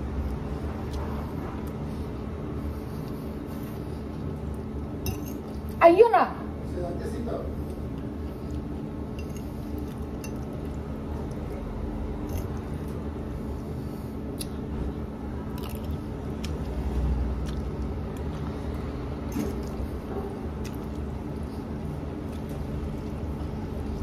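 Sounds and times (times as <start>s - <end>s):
low kitchen hum: 0.0s - 24.0s
person chewing: 7.7s - 13.1s, 13.8s - 23.5s.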